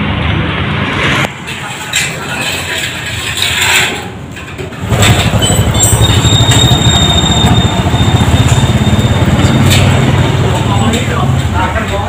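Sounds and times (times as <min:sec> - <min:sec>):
motorcycle engine running: 0:04.8 - 0:12.0.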